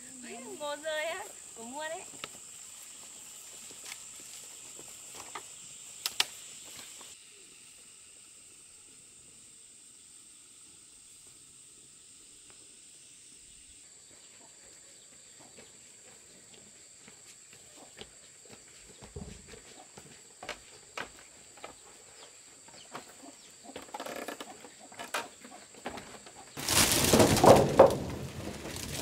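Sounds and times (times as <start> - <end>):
high-pitched insect drone: 0.0 - 14.4
sharp clicks: 6.0 - 6.4.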